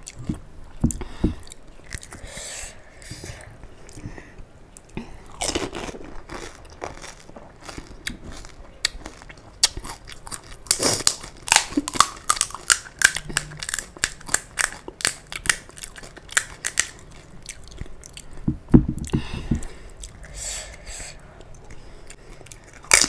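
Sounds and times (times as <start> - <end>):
crisp shells crunching when chewed: 4.8 - 18.4, 22.1 - 23.0.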